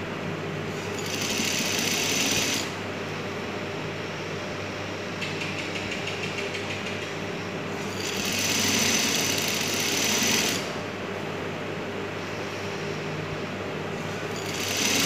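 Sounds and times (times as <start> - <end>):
sewing machine stitching: 1.0 - 2.7, 8.0 - 10.7, 14.4 - 15.0.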